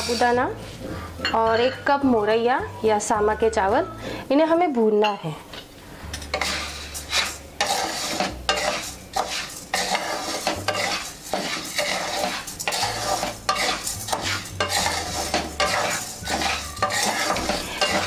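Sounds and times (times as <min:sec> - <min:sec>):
wooden spatula scraping grains in pan: 0:00.0 - 0:01.1, 0:06.3 - 0:18.0.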